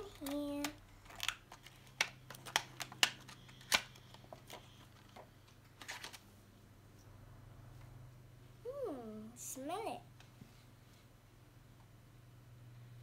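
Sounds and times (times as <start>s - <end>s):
plastic packaging crackling: 0.0s - 6.2s.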